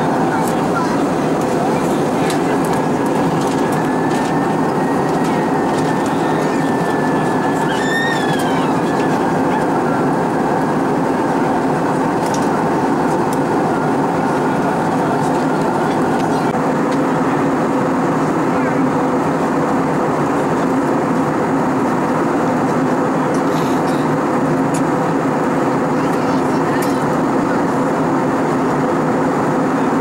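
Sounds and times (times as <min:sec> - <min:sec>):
airplane cabin airflow and engine noise: 0:00.0 - 0:30.0.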